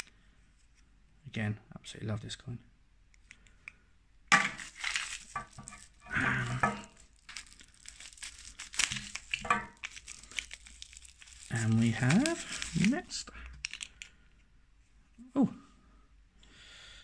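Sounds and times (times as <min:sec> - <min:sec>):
bubble wrap crinkling: 0:04.3 - 0:14.1.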